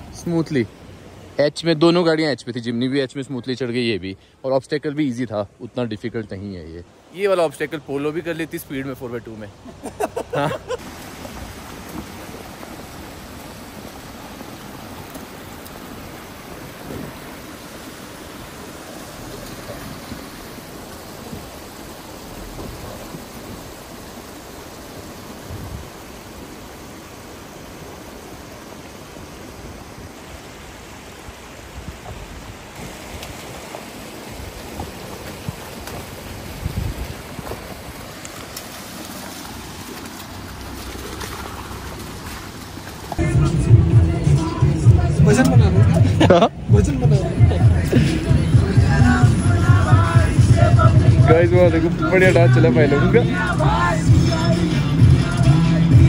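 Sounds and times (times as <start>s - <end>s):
rocky mountain stream rushing: 0.0s - 56.0s
dull low thumps: 43.2s - 52.5s.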